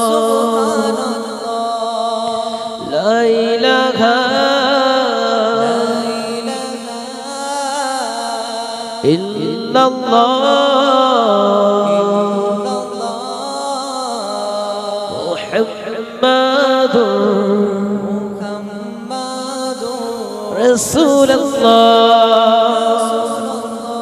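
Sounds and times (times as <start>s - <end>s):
men singing devotional song: 0.0s - 24.0s.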